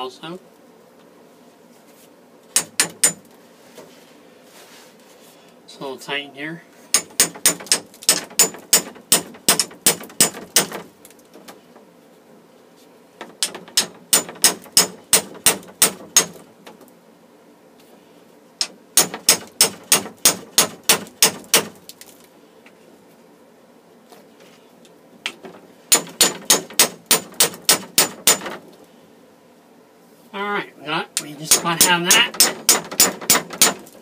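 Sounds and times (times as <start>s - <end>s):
hammer tapping metal tool: 2.5s - 3.3s, 6.9s - 10.8s, 13.4s - 16.3s, 31.5s - 33.8s.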